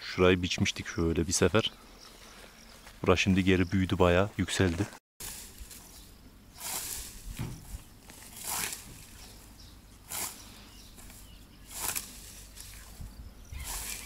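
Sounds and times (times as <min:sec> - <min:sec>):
scythe swishing through grass: 0:05.2 - 0:14.0.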